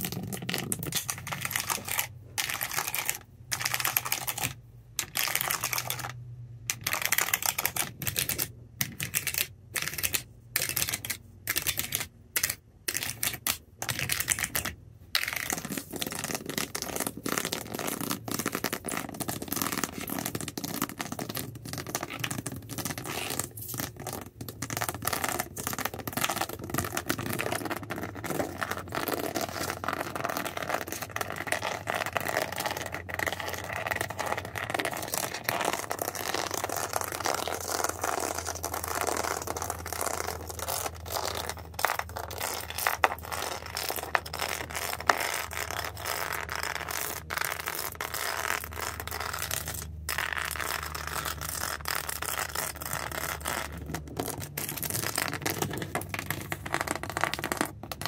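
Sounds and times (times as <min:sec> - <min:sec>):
fingernails scratching object: 0:15.2 - 0:58.0.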